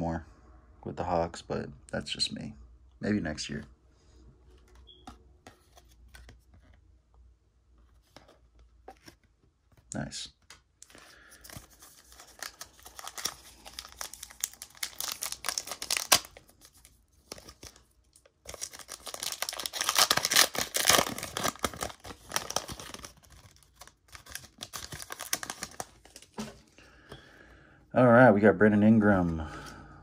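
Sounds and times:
foil wrapper crinkling and tearing: 0:11.1 - 0:26.4.

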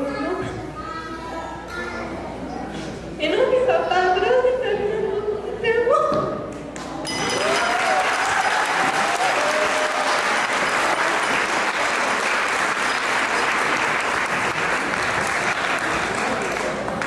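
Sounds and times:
crowd applauding: 0:07.1 - 0:17.0.

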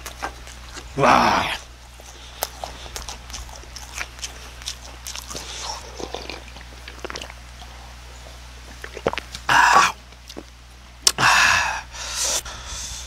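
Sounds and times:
chewing and lip-smacking: 0:00.0 - 0:08.0, 0:08.6 - 0:09.5, 0:10.1 - 0:11.2.

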